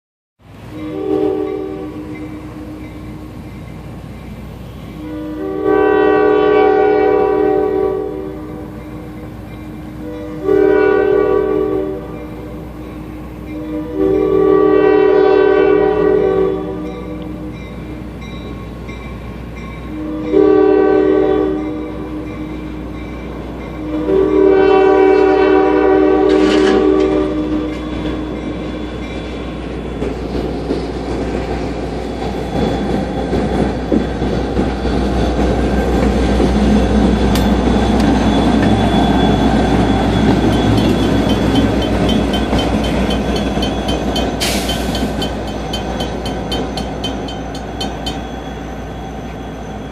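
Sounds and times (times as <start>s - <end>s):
locomotive air horn: 0.7s - 2.8s, 5.0s - 8.8s, 9.9s - 12.6s, 13.5s - 17.5s, 19.9s - 22.8s, 23.8s - 28.3s, 38.0s - 47.1s
diesel engine rumbling: 33.4s - 48.9s
bell dinging: 38.0s - 48.6s.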